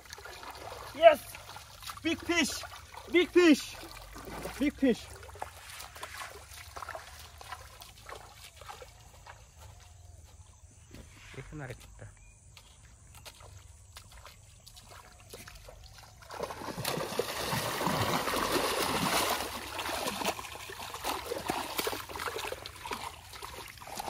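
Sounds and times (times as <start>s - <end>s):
splashing and thrashing in water: 0.0s - 10.1s, 13.0s - 24.0s
feet sloshing through water: 0.0s - 24.0s
hands splashing through mud: 12.6s - 24.0s.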